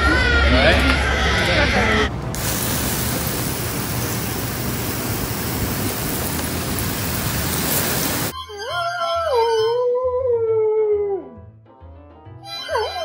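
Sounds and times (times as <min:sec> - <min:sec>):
water spraying hiss: 0:02.4 - 0:08.3.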